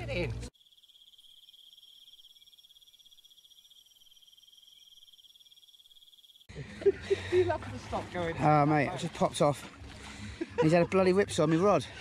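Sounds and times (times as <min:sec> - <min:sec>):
insect trilling: 0:00.5 - 0:06.5.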